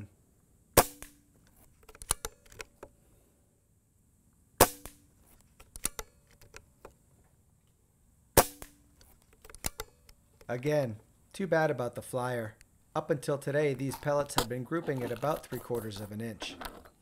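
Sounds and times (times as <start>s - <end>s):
air pistol shots: 0.8s - 1.3s, 4.6s - 5.0s, 8.4s - 8.8s
bolt clicking: 9.0s - 10.5s.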